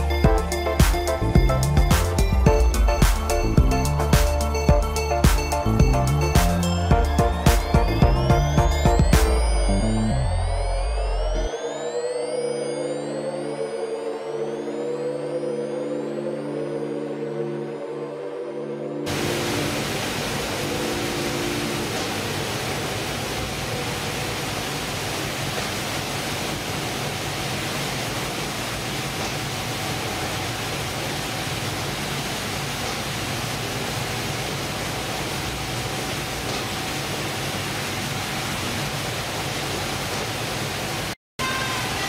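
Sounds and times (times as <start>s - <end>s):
fish-processing line running: 19.1s - 42.0s.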